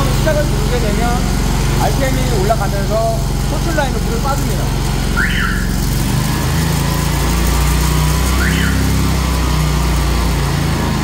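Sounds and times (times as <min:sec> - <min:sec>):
petrol engine revving up and running: 0:00.0 - 0:11.0.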